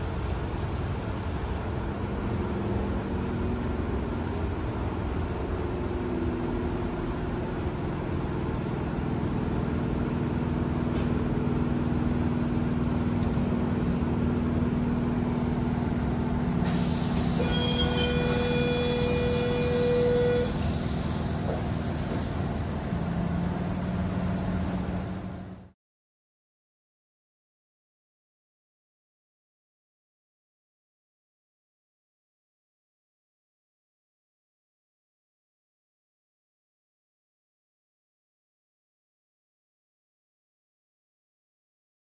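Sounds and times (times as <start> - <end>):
electric train running hum: 0.0 - 25.7.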